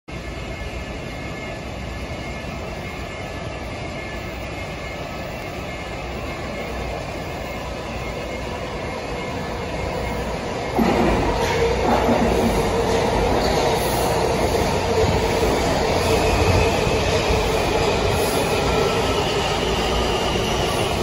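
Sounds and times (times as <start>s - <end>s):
subway train rumbling in tunnel: 0.1s - 21.0s.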